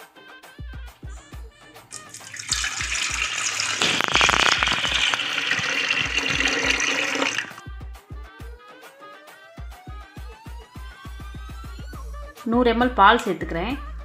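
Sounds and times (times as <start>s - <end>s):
water pouring into a pot: 1.9s - 7.7s.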